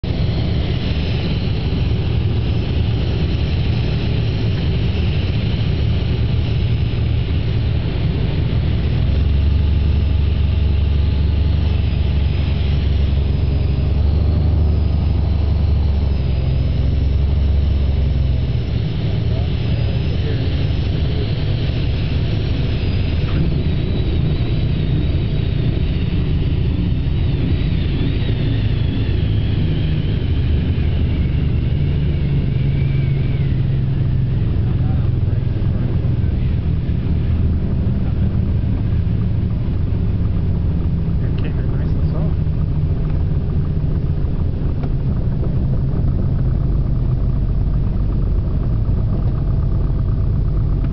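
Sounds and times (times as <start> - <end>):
aircraft engine and airflow drone: 0.0 - 50.9.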